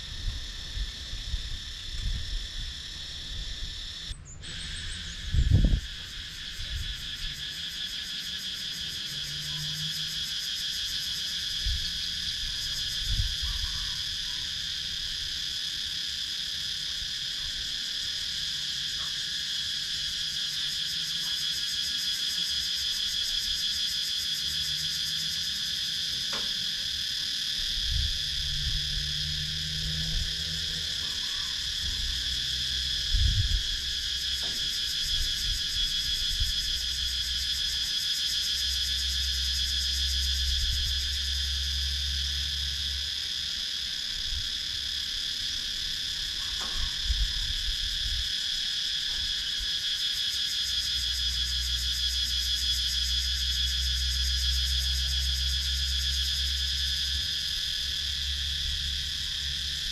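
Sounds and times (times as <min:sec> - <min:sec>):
cicadas droning: 0:00.0 - 0:59.9.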